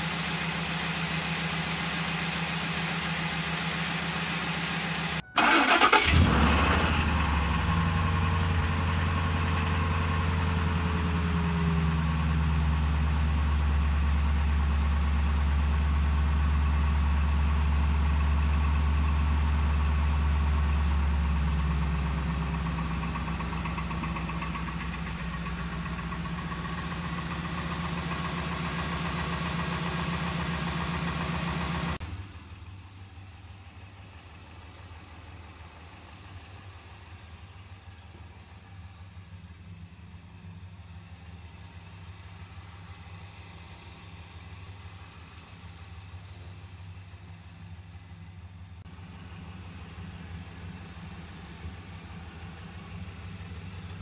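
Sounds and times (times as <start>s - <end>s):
car engine running: 0.0s - 54.0s
engine idling: 0.0s - 54.0s
engine cranking and starting: 3.8s - 7.4s.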